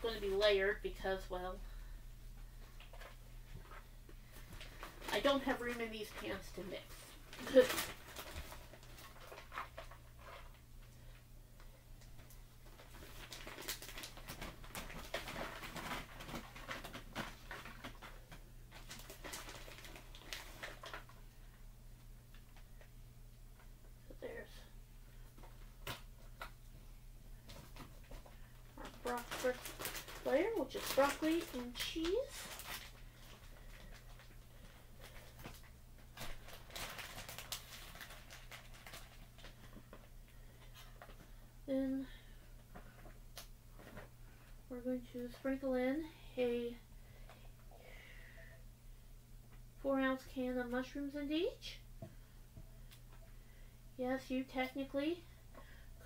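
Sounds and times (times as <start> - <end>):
steady low hum: 0.0 - 56.0
plastic bag crinkling: 2.6 - 11.2, 12.0 - 21.5, 27.4 - 41.4.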